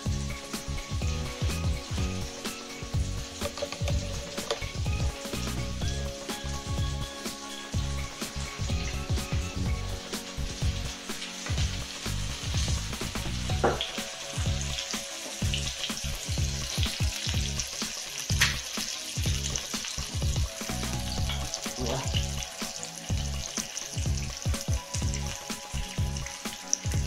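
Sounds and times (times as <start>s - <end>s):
fish sizzling in a frying pan: 0.0s - 27.0s
pan knocking and clinking: 3.4s - 4.8s, 13.5s - 14.0s.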